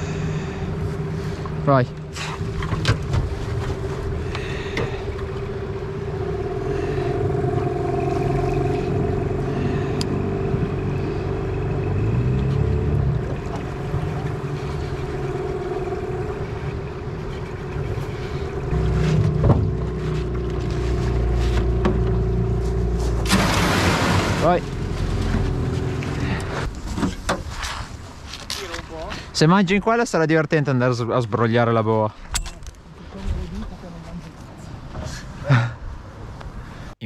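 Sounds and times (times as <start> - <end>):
small boat motor humming: 0.0 - 28.2.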